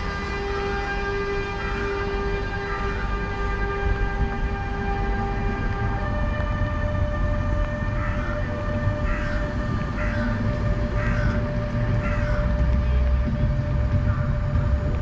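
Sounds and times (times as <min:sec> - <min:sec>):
locomotive electric whine: 0:00.0 - 0:15.0
train rumble: 0:00.0 - 0:15.0.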